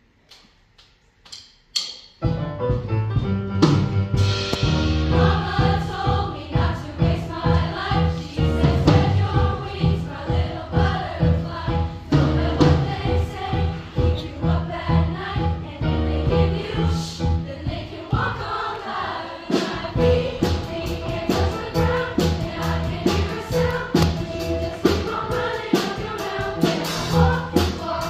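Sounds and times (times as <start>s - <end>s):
choir singing: 4.9s - 28.0s.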